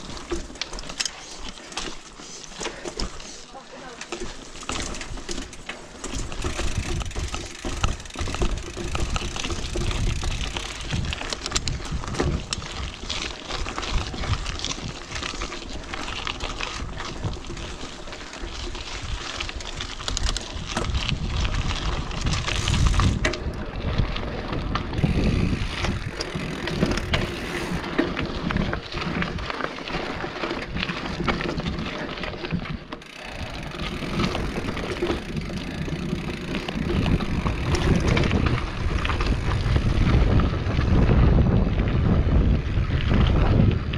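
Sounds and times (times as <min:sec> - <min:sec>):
bike knocking and rattling: 0:00.0 - 0:43.9
bike tyres rolling over dirt: 0:00.0 - 0:43.9
wind on microphone: 0:18.9 - 0:29.5, 0:33.2 - 0:43.9.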